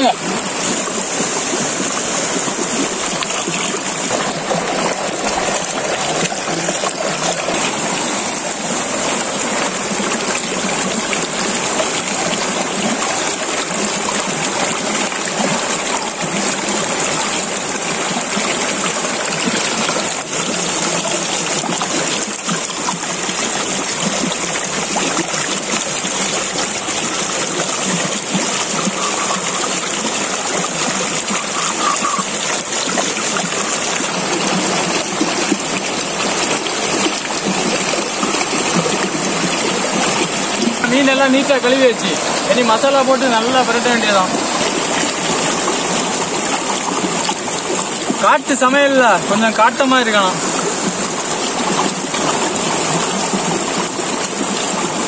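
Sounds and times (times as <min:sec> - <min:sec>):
river rushing over rocks: 0:00.0 - 0:55.0.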